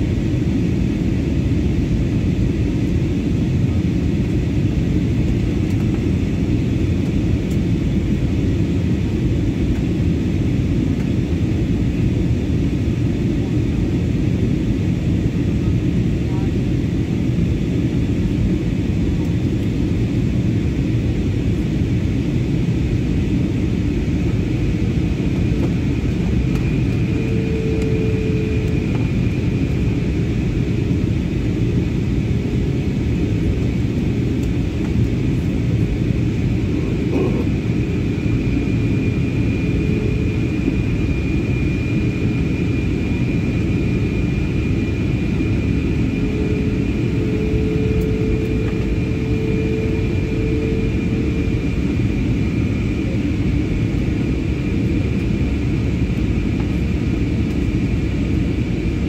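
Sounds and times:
jet engines roaring: 0.0s - 59.0s
faint steady whine: 20.7s - 58.8s.

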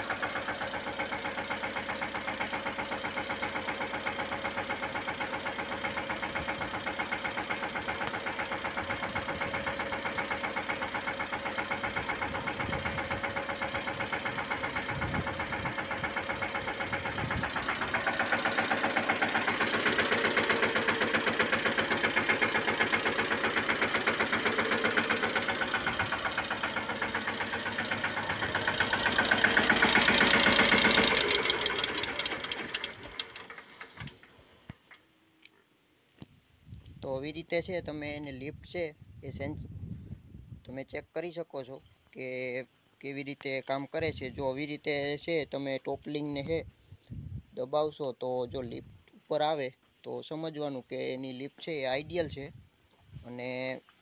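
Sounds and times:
tractor diesel engine running: 0.0s - 35.6s, 50.8s - 54.0s.

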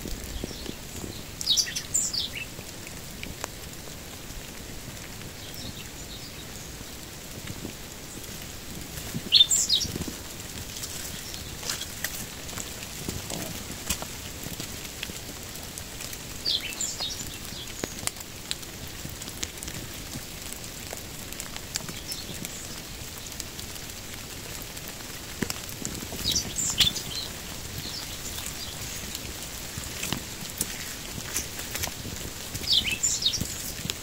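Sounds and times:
rain falling on foliage: 0.0s - 34.0s
small bird chirping: 0.3s - 2.5s, 9.2s - 10.1s, 26.1s - 29.2s, 32.6s - 33.8s.

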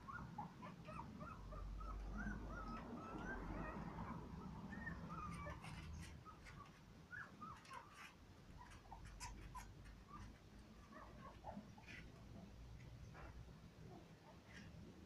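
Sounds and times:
puppies whimpering: 0.0s - 12.1s.

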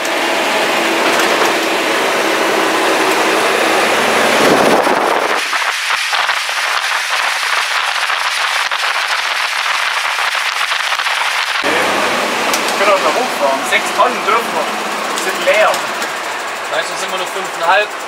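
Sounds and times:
fire truck engine: 0.0s - 18.0s
road noise: 0.0s - 18.0s
wind rushing over microphone: 3.5s - 12.1s.

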